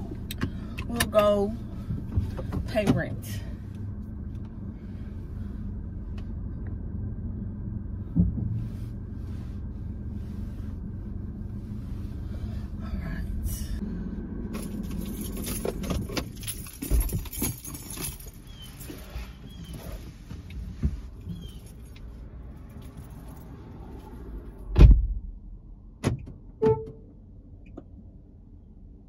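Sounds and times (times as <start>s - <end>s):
car road and engine rumble: 0.0s - 29.0s
sharp thump: 8.1s - 8.6s, 24.7s - 25.3s
knocks and rattles: 14.6s - 18.4s.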